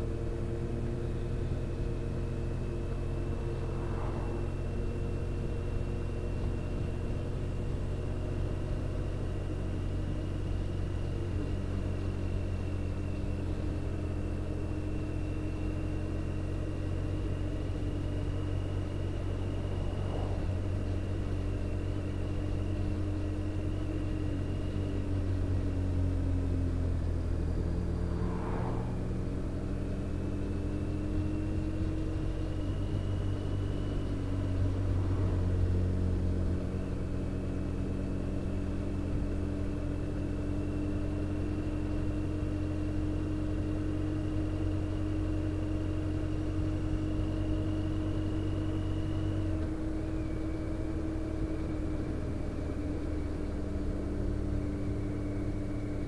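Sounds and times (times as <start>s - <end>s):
motorcycle engine cruising: 0.0s - 56.0s
wind and road noise: 0.0s - 56.0s
car passing: 2.2s - 6.1s, 18.7s - 22.6s, 27.3s - 31.1s, 34.1s - 37.6s.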